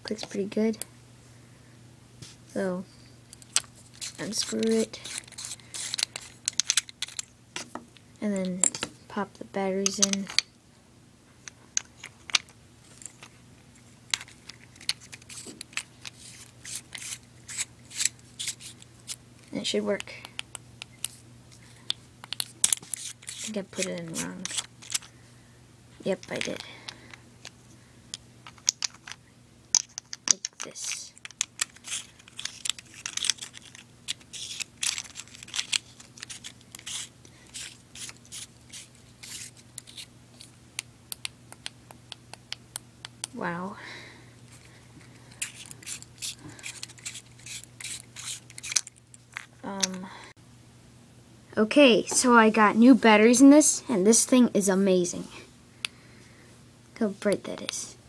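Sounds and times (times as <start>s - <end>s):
metal threads scraping and clicking: 3.3s - 8.9s, 9.8s - 10.5s, 21.9s - 25.1s, 28.1s - 41.8s, 45.3s - 50.1s.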